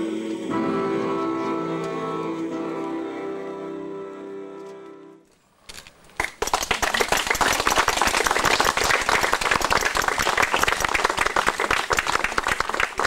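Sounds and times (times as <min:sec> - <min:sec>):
music: 0:00.0 - 0:05.3
audience applause: 0:06.2 - 0:13.0.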